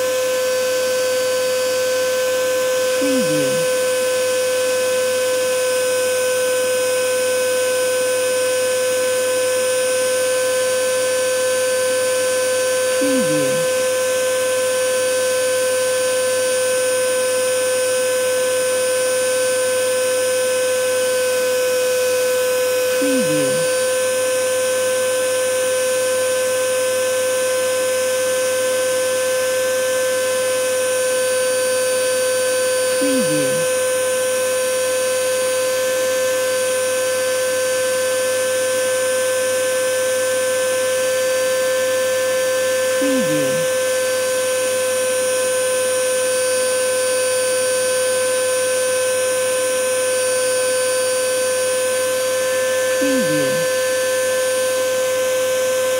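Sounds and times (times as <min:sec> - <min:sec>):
vacuum cleaner motor running: 0:00.0 - 0:55.9
vacuum cleaner running: 0:48.6 - 0:55.9.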